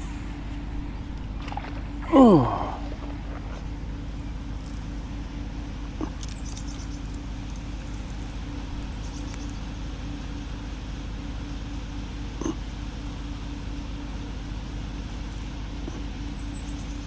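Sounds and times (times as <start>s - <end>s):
faint hum: 0.0s - 17.0s
low outdoor rumble: 0.0s - 17.0s.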